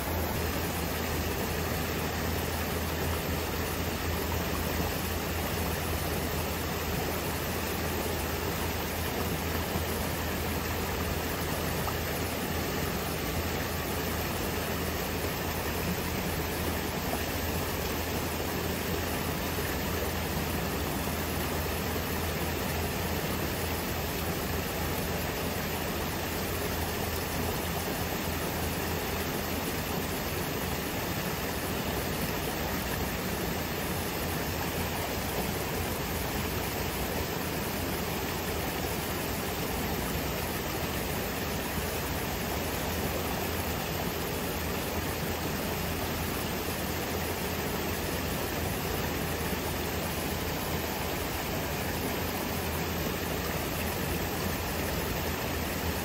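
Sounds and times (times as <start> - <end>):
fountain water running over rocks: 0.0 - 56.0.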